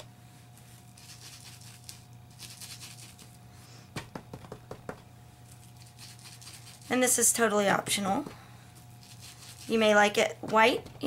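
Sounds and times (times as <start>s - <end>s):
foam tool rubbing paper: 1.0s - 3.4s, 5.6s - 7.0s, 9.0s - 9.9s
tool tapping on ink pad: 4.0s - 5.0s.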